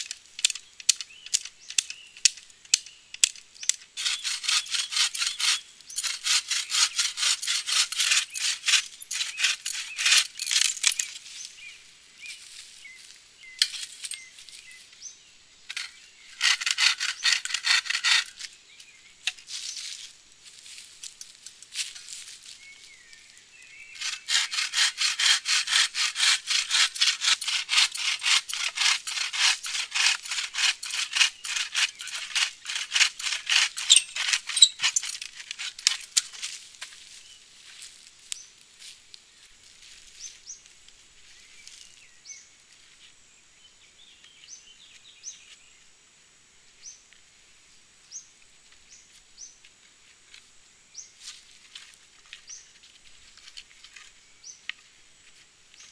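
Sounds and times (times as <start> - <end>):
bow saw cutting log: 4.0 - 10.3, 15.7 - 18.4, 24.0 - 36.2.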